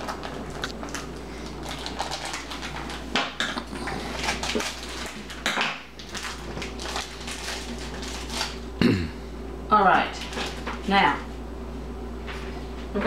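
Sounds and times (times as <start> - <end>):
plastic wrap crinkling: 0.0 - 8.7, 10.1 - 10.9
low steady hum: 0.0 - 13.0.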